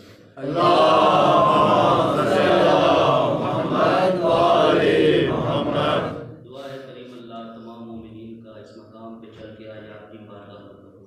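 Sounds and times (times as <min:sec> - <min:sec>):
men chanting in unison: 0:00.4 - 0:06.4.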